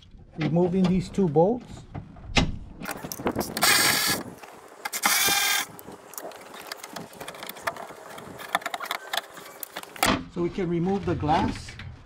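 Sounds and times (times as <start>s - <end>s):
power ratchet spinning: 3.1s - 5.8s.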